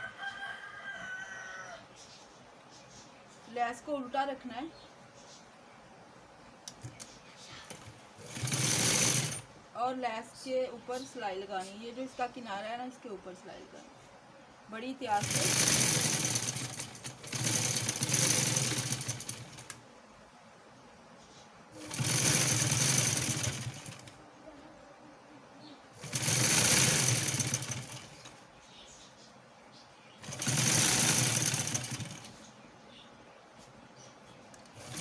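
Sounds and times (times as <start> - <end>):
sewing machine stitching: 7.6 - 9.4, 15.1 - 19.8, 21.8 - 24.2, 26.0 - 28.4, 30.2 - 32.4, 34.7 - 35.0.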